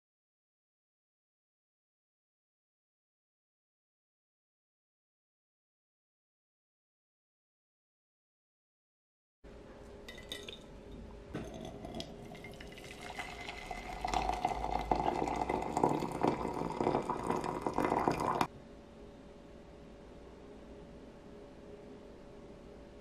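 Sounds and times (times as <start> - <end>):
glass clink: 10.1 - 10.7, 11.4 - 18.5
tea pouring into glass: 11.4 - 18.5.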